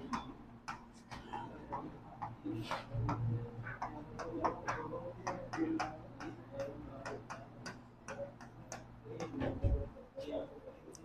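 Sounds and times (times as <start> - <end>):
chalk tapping and scraping on blackboard: 0.0 - 9.6.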